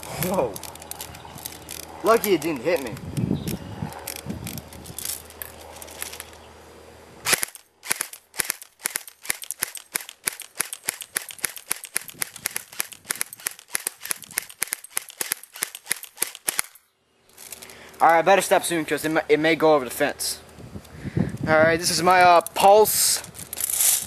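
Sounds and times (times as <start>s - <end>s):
airsoft rifle shots: 7.2s - 16.8s.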